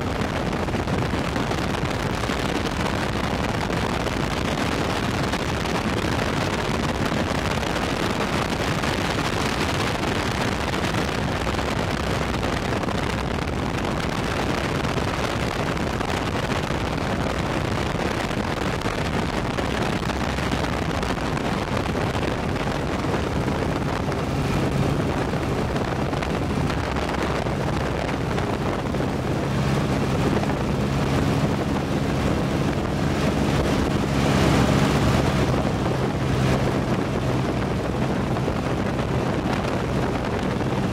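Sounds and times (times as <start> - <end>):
wind rush on microphone: 0.0 - 40.9
aircraft engine drone: 19.4 - 40.9.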